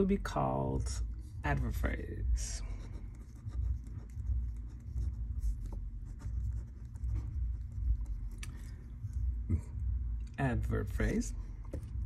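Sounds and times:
low rumble: 0:00.0 - 0:12.0
pen scratching on paper: 0:02.6 - 0:09.4.

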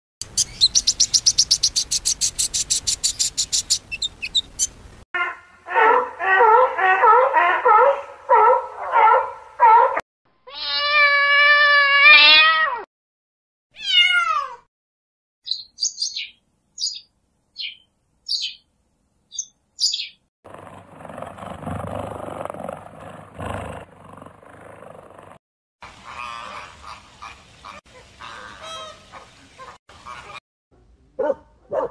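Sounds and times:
high bird chirps: 0:00.2 - 0:04.8, 0:15.4 - 0:18.7, 0:19.3 - 0:20.2
rough noisy growl: 0:20.5 - 0:25.4.

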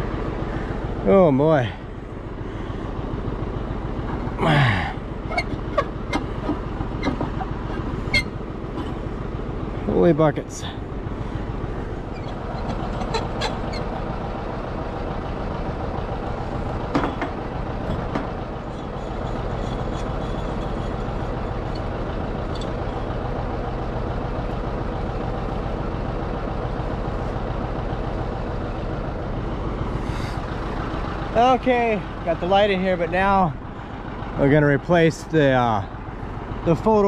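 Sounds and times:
engine idling: 0:00.0 - 0:37.0
sharp clicks and knocks: 0:05.3 - 0:09.0, 0:12.1 - 0:14.1, 0:16.8 - 0:23.1.

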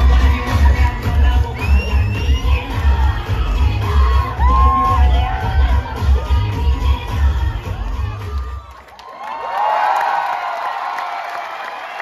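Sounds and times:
dance music: 0:00.0 - 0:08.9
crowd cheering and whooping: 0:01.1 - 0:12.0.

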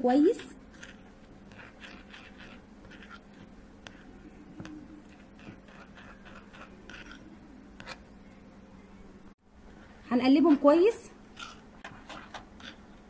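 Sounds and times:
spoon scraping glass bowl: 0:00.2 - 0:08.0, 0:11.3 - 0:12.9.

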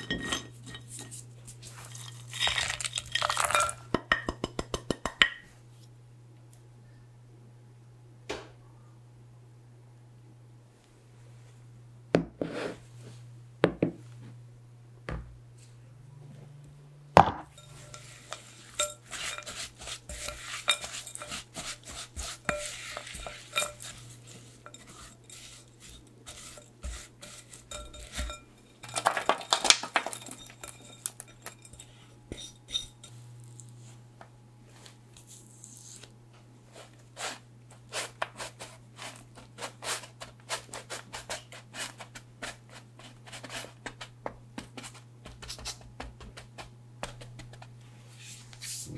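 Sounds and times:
low steady hum: 0:00.0 - 0:48.9
spatula scraping glass bowl: 0:17.5 - 0:33.7
oats rustling: 0:17.6 - 0:29.4.

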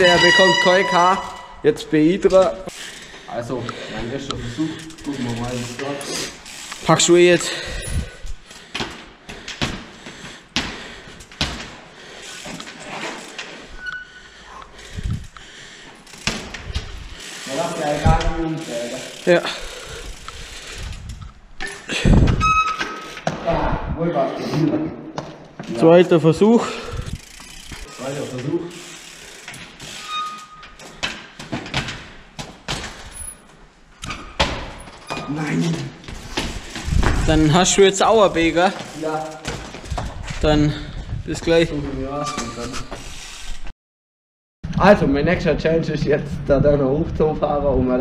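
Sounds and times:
bike landing on concrete steps: 0:08.6 - 0:13.5, 0:15.9 - 0:19.6, 0:30.7 - 0:35.4, 0:36.0 - 0:40.6
wheels thudding on steps: 0:08.6 - 0:14.0.

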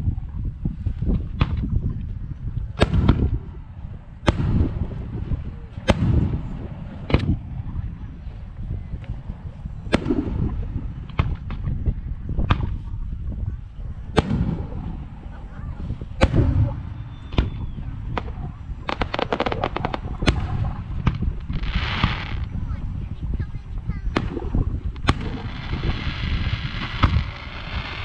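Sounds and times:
firework crackles: 0:14.0 - 0:28.0
firework shells bursting: 0:16.2 - 0:22.5.

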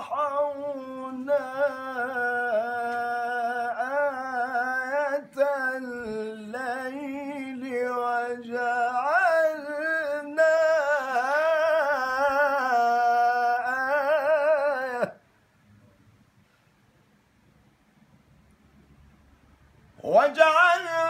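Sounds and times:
man chanting melodically: 0:00.0 - 0:15.2, 0:20.0 - 0:21.0.

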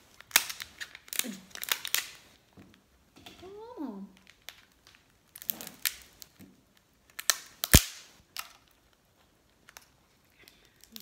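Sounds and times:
lobster shell cracking: 0:00.2 - 0:02.2, 0:07.0 - 0:08.8.

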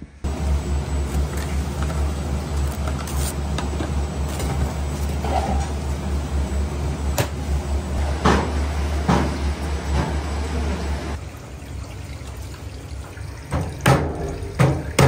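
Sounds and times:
kitchen machinery rumble: 0:00.0 - 0:11.2.

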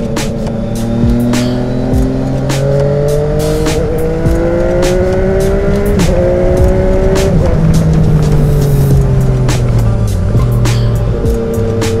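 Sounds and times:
motorcycle engine revving: 0:00.0 - 0:12.0
wind noise: 0:03.6 - 0:12.0.

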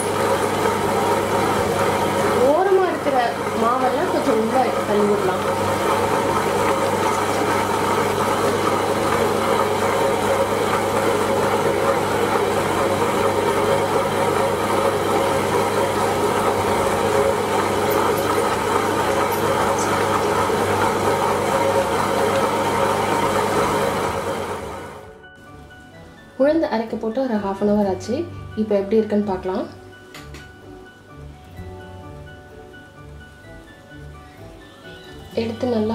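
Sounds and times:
wet grinder running: 0:00.0 - 0:25.1.

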